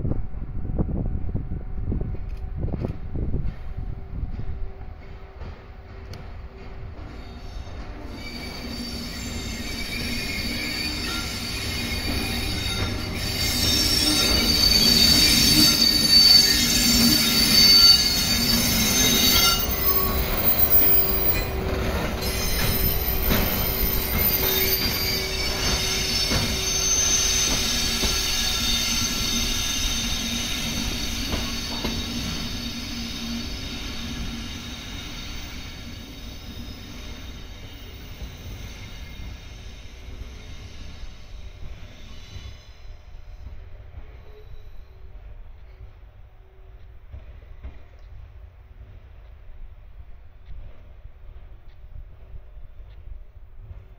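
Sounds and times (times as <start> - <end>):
low rumble from rails: 0.0 - 41.9
train wheels squealing: 6.9 - 48.2.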